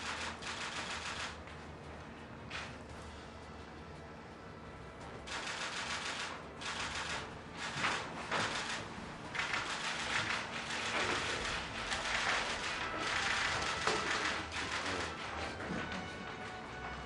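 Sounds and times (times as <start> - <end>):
camera shutters clicking: 9.4 - 15.1.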